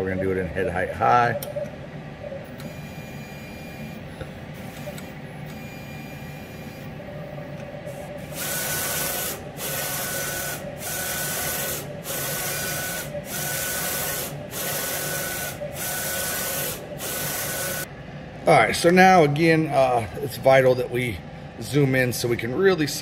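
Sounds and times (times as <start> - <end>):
printer hum: 0.0 - 23.0
print head carriage sweeping: 6.9 - 17.9.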